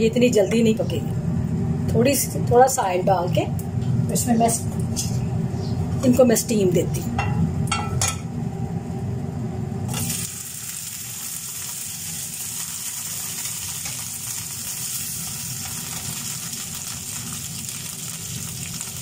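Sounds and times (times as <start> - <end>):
meat sizzling in frying pan: 9.9 - 19.0.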